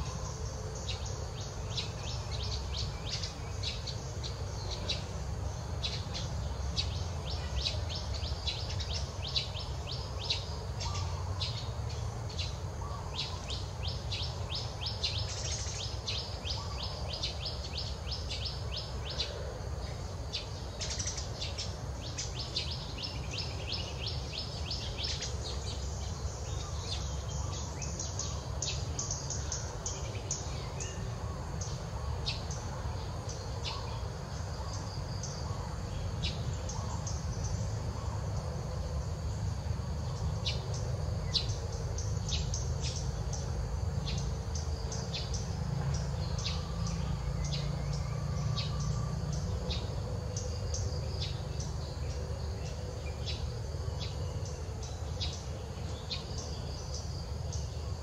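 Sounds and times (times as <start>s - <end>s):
insect hum: 0.0s - 58.0s.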